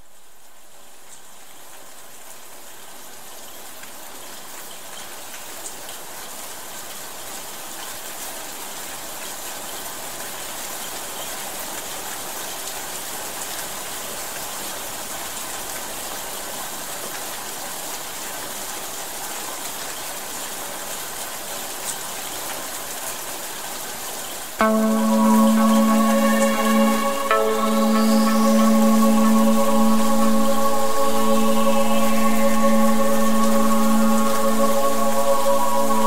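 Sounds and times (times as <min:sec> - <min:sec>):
rain falling on leaves: 0:00.0 - 0:24.6.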